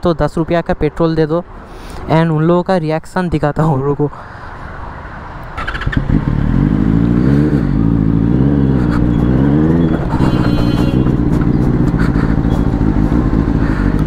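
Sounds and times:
motorbike engine idling: 0:08.9 - 0:14.0.

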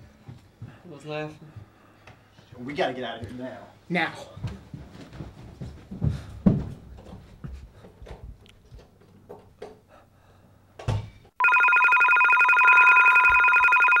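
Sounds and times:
soft scuffs and knocks: 0:04.3 - 0:08.9
cordless telephone ringing: 0:11.4 - 0:14.0.

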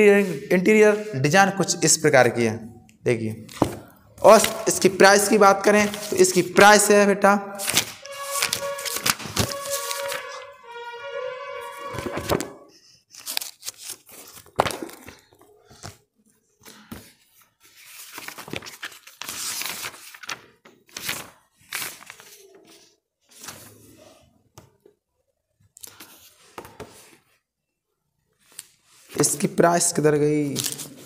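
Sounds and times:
book pages rustling: 0:03.5 - 0:04.9, 0:05.7 - 0:06.6, 0:07.6 - 0:10.5, 0:11.6 - 0:16.0, 0:16.6 - 0:23.8
pages flapping: 0:03.5 - 0:04.9, 0:05.8 - 0:06.6, 0:07.6 - 0:10.5, 0:11.7 - 0:16.0, 0:17.8 - 0:22.4.

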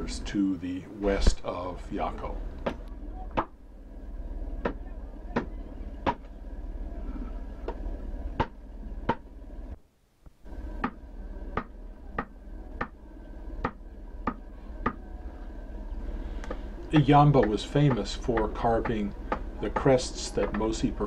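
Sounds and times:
steady film soundtrack hum: 0:00.0 - 0:21.0
adze chopping into wood: 0:05.4 - 0:06.3, 0:08.4 - 0:09.2, 0:10.8 - 0:11.0, 0:17.4 - 0:20.7.

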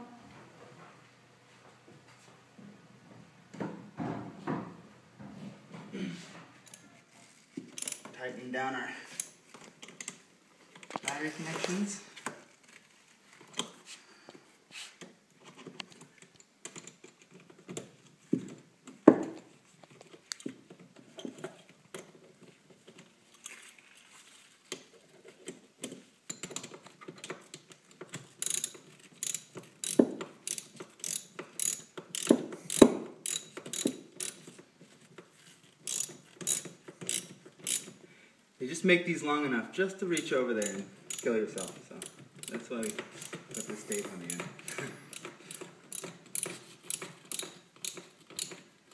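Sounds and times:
ratchet wrench clicking: 0:07.8 - 0:08.1, 0:28.4 - 0:34.5, 0:35.8 - 0:38.0, 0:40.2 - 0:48.7.

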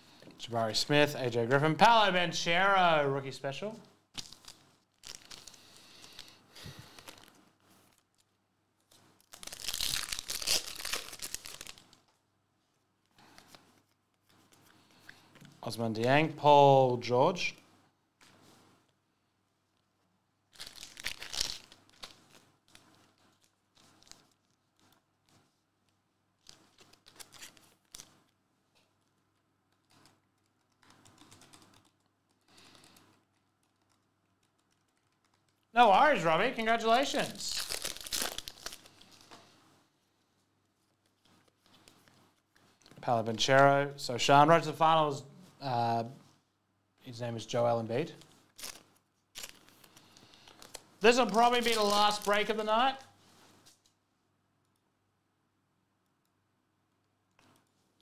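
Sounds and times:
wrapper ripping open: 0:04.2 - 0:08.3, 0:09.2 - 0:12.1, 0:20.5 - 0:25.0, 0:26.4 - 0:28.4, 0:37.0 - 0:39.4, 0:48.5 - 0:53.1
wrapper crinkling: 0:04.2 - 0:12.2, 0:20.5 - 0:25.7, 0:26.4 - 0:35.7, 0:36.7 - 0:39.6, 0:48.2 - 0:54.0.

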